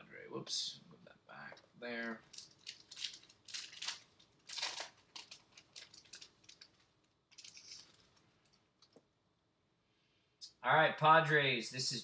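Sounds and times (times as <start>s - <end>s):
foil wrapper crinkling: 2.0s - 8.9s.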